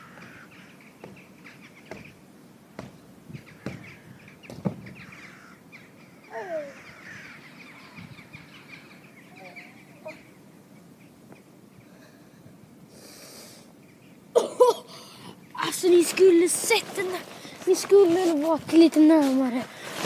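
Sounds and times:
birds chirping and calling: 0.0s - 12.2s
thumps on trampoline: 3.6s - 5.0s.

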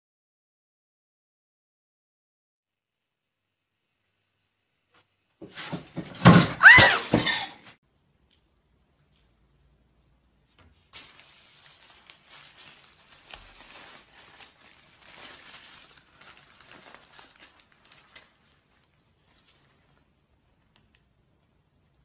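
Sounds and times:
paper wrapper crinkling: 10.6s - 22.0s.

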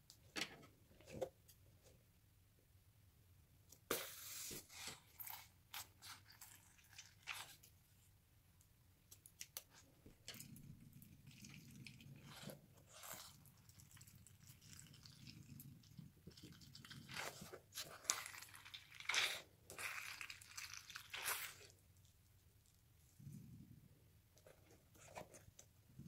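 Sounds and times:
wet gel beads squelching: 5.0s - 7.8s, 9.1s - 22.2s.

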